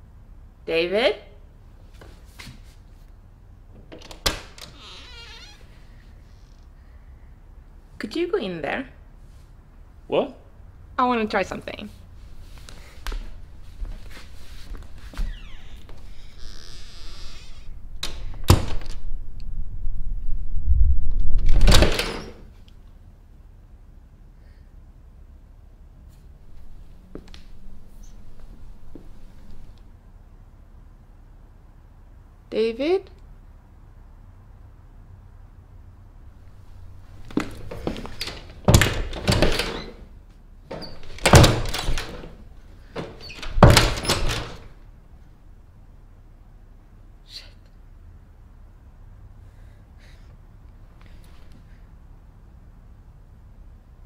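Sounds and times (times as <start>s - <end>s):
closet door shutting with click: 3.8s - 5.6s, 15.1s - 19.0s, 21.4s - 22.5s, 37.2s - 40.1s, 40.7s - 44.8s.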